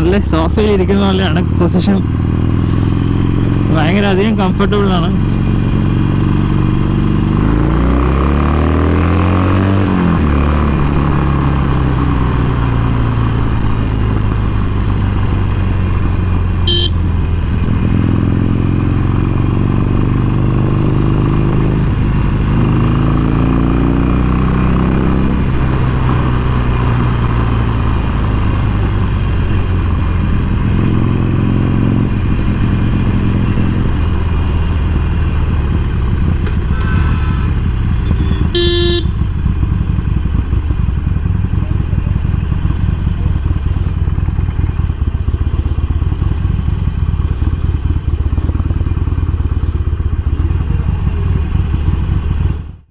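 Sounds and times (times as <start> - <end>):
motorcycle engine running: 0.0 - 52.9
vehicle horn honking: 16.6 - 17.1, 36.5 - 39.3.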